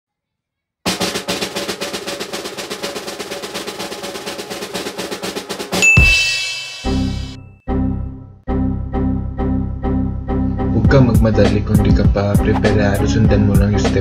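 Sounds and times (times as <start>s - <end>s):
snare drum roll: 0.9s - 7.3s
cymbal ringing: 5.8s - 7.4s.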